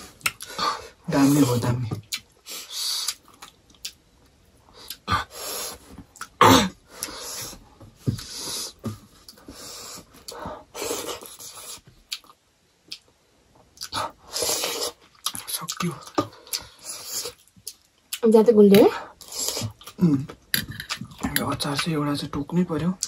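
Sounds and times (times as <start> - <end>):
chewing and mouth smacks: 3.0 - 4.0, 11.4 - 13.1, 13.7 - 14.0
breathy sniffs and puffs: 6.9 - 11.8.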